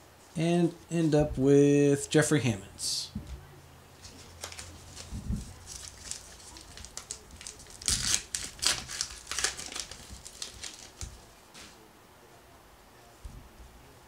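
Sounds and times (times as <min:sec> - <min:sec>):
paper wrapper ripping and crinkling: 0:04.0 - 0:11.2.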